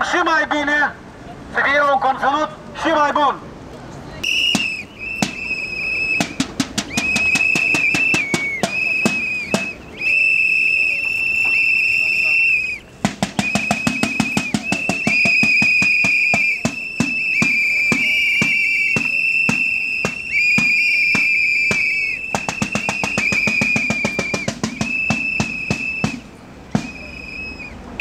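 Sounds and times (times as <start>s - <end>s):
whistles blowing high-pitched blasts: 4.2s - 28.0s
fast rhythmic beating: 13.0s - 27.1s.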